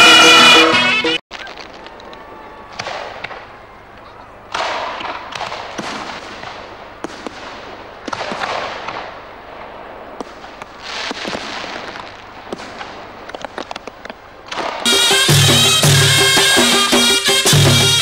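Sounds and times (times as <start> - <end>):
firecrackers crackling: 1.3 - 18.0
sharp firecracker bangs: 2.7 - 3.5, 4.5 - 18.0.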